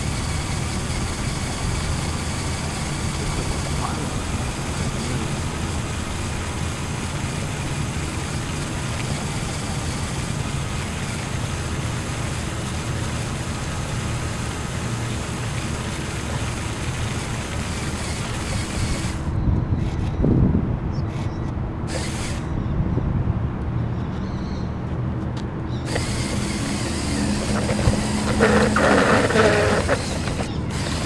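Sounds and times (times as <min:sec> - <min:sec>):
toy motors and gears whining: 0:00.0 - 0:06.7, 0:16.2 - 0:20.1, 0:21.9 - 0:22.5, 0:25.9 - 0:31.0
wheels rattling over pavers: 0:00.0 - 0:19.3, 0:25.9 - 0:31.0.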